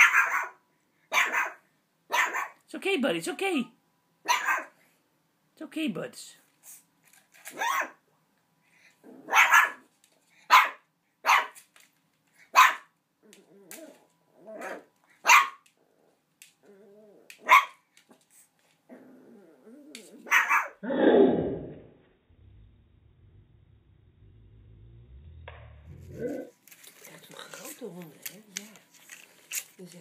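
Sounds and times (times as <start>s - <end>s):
puppy barking: 0.0s - 2.6s, 4.2s - 4.8s, 7.5s - 8.0s, 9.2s - 9.9s, 10.5s - 11.6s, 12.5s - 12.9s, 14.6s - 15.6s, 17.4s - 17.8s, 20.2s - 20.8s
puppy growling: 9.0s - 9.8s, 13.2s - 14.9s, 15.7s - 17.5s, 18.9s - 28.1s.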